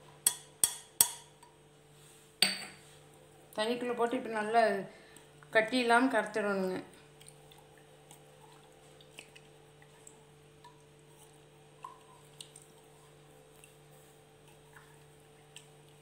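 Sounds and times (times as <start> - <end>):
steady low hum: 0.0 - 16.0
fingers squishing wet batter: 7.1 - 16.0.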